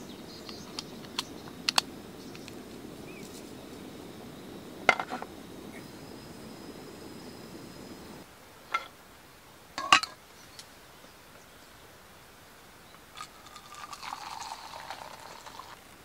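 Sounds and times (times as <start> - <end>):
water poured into metal mug: 13.2 - 15.8.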